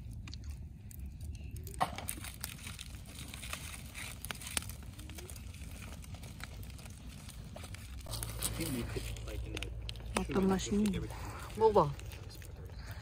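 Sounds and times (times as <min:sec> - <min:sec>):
wood fire crackling: 0:00.0 - 0:13.0
low steady rumble: 0:02.8 - 0:13.0.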